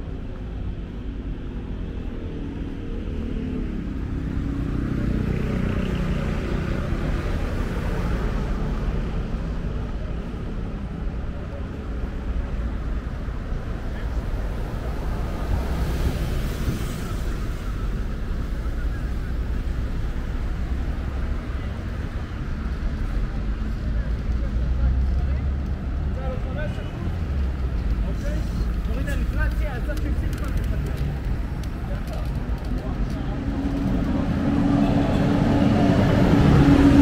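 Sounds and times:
traffic rumble: 0.0 - 37.0
faint voices: 16.7 - 37.0
vehicle passing: 27.0 - 37.0.

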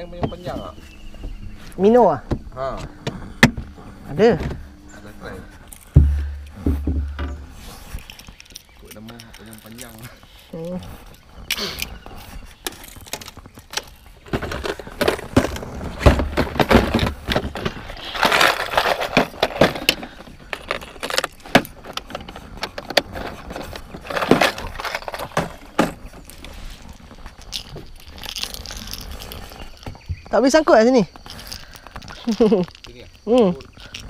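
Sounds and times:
lures clattering in plastic box: 12.6 - 30.0, 31.2 - 34.0.

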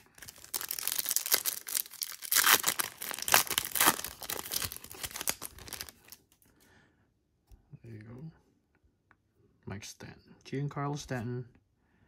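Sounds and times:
foil wrapper tearing and crinkling: 0.0 - 6.2.

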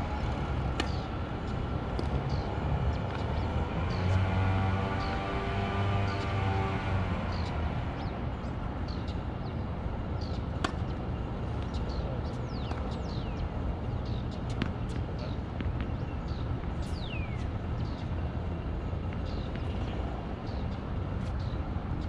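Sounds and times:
tennis ball struck by racket: 0.6 - 1.1, 10.6 - 10.9.

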